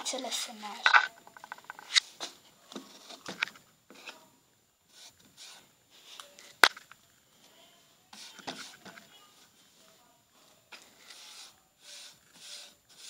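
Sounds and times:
hands rubbing on tabletop: 8.1s - 8.8s, 10.8s - 13.0s.

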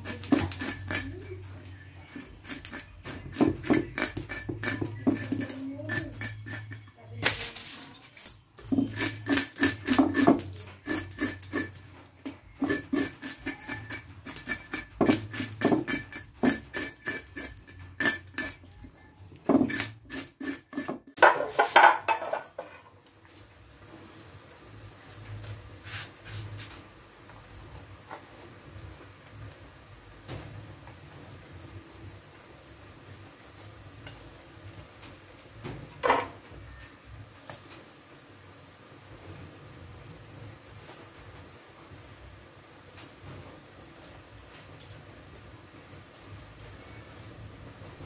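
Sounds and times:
knife scraping fish scales: 0.0s - 7.7s, 8.6s - 18.7s, 19.6s - 21.1s.

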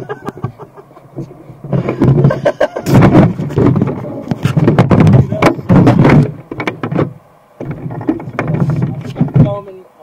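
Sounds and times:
radio-controlled car rattling: 1.8s - 9.7s.

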